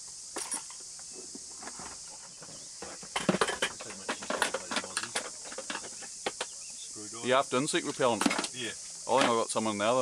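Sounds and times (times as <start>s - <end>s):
high-pitched insect chorus: 0.0s - 10.0s
sharp clicks and knocks: 2.8s - 6.6s.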